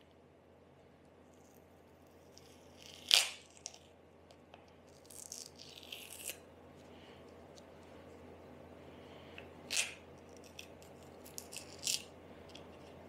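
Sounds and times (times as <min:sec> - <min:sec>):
masking tape tearing: 0:02.8 - 0:03.8.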